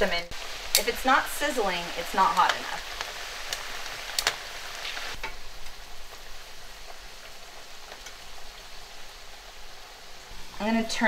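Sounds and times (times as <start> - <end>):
oil sizzling in a skillet: 0.0 - 11.0
metal tongs clicking on pan: 0.7 - 1.0.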